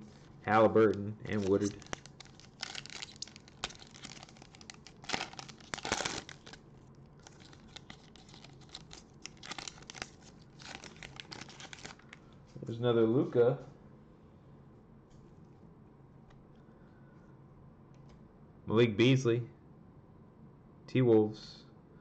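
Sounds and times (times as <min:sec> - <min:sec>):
foil pack crinkling and tearing: 0:00.5 - 0:12.2.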